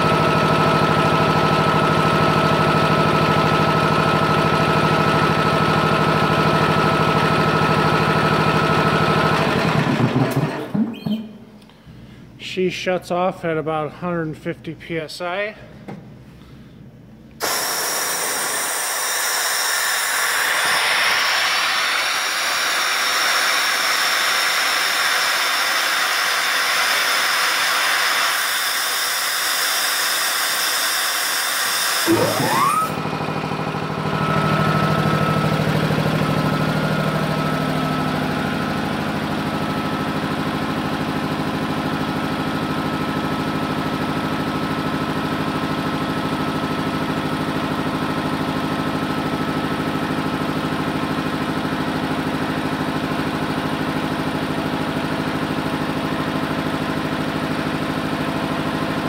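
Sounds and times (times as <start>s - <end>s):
compressed air hissing from drain: 17.4s - 24.3s
electric motor spinning up: 27.5s - 33.3s.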